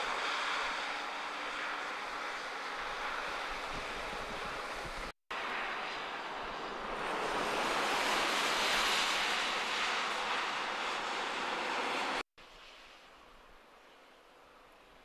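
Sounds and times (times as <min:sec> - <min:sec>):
wind rushing across microphone: 0:02.2 - 0:05.2.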